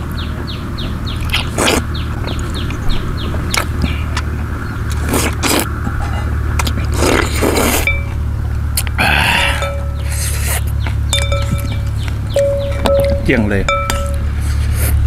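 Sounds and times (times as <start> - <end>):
steady low hum: 0.0 - 15.0
person slurping noodles: 1.3 - 1.8, 5.0 - 5.7, 6.8 - 7.9.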